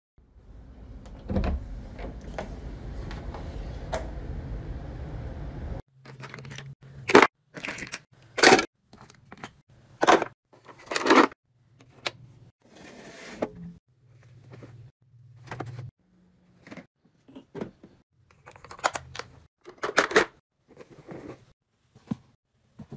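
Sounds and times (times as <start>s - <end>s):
plastic toys clattering: 6.0s - 11.4s.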